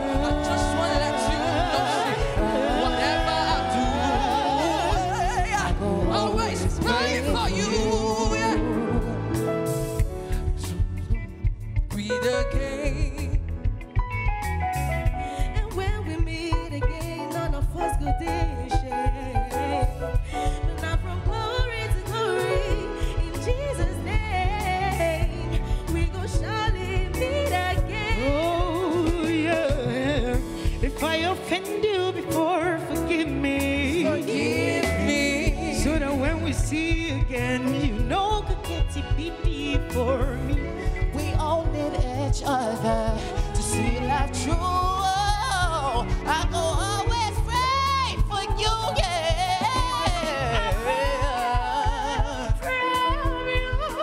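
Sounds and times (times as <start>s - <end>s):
women singing vocal runs: 0.0s - 9.2s.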